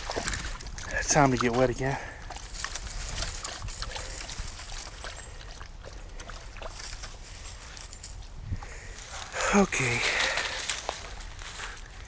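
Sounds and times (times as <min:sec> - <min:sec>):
water sloshing from wading: 0:00.0 - 0:08.3.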